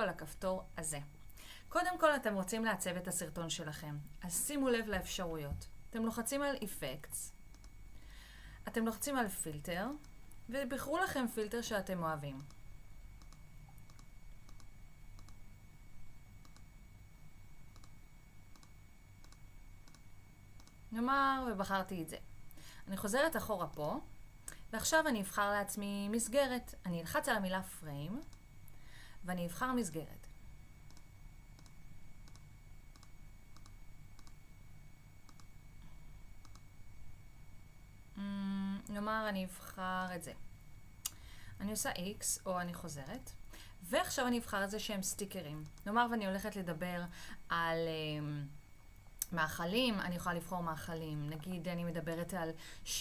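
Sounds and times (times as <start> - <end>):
low steady hum: 0.0 - 53.0
computer mouse clicking: 7.5 - 7.8, 12.4 - 15.4, 16.4 - 16.7, 17.7 - 20.8, 28.2 - 28.4, 30.9 - 34.4, 35.2 - 35.6, 36.4 - 36.7, 45.6 - 45.9.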